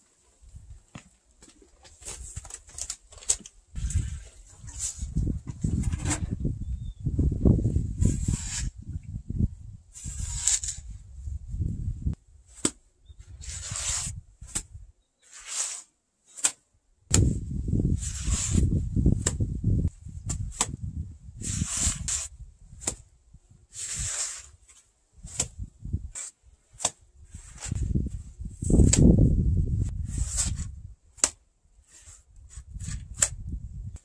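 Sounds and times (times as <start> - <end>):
mortar scraping swishes: 7.6 - 9.0, 9.9 - 11.1, 12.5 - 23.1, 23.7 - 33.5
mortar slaps: 12.5 - 12.8, 16.3 - 17.3, 19.1 - 19.5, 20.2 - 20.9, 22.8 - 23.1, 25.2 - 25.6, 26.2 - 27.0, 28.7 - 29.2, 30.4 - 31.4, 32.9 - 33.4.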